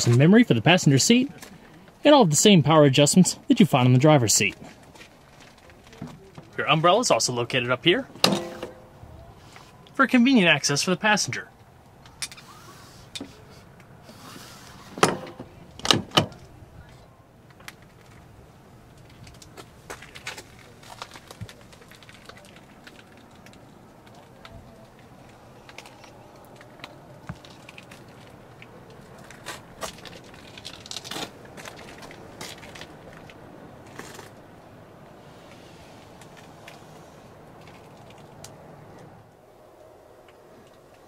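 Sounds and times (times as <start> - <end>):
rustles and scrapes of handling: 4.4 - 7.1, 8.0 - 10.0, 12.1 - 15.6, 16.4 - 34.5, 35.2 - 39.2.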